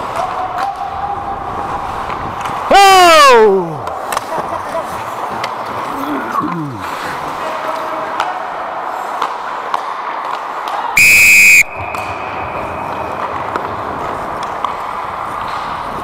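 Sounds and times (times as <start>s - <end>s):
referee's whistle blast: 11.0s - 12.4s.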